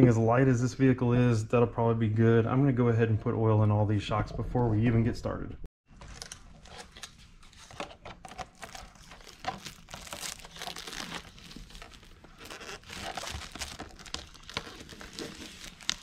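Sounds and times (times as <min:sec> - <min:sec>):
plastic film peeling and crinkling: 0:06.7 - 0:16.0.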